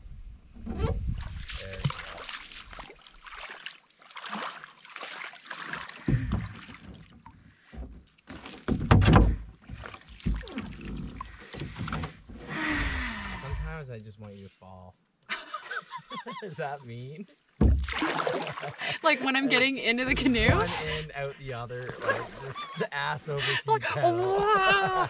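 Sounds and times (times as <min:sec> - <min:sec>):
water splashing around canoe: 0:01.0 - 0:12.6, 0:17.6 - 0:22.8
knocks against canoe hull: 0:06.0 - 0:12.5, 0:17.6 - 0:18.0.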